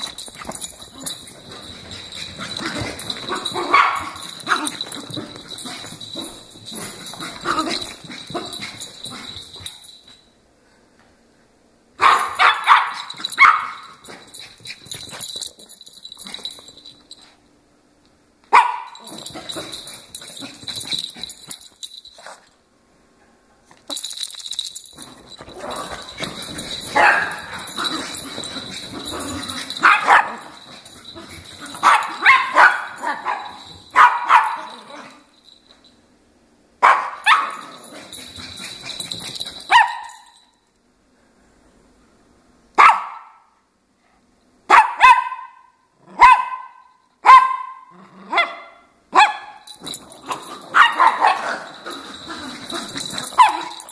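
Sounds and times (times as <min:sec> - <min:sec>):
small dogs barking and yipping: 0:00.0 - 0:10.0, 0:12.0 - 0:15.6, 0:18.5 - 0:21.6, 0:25.3 - 0:35.2, 0:36.8 - 0:40.4, 0:44.7 - 0:53.9.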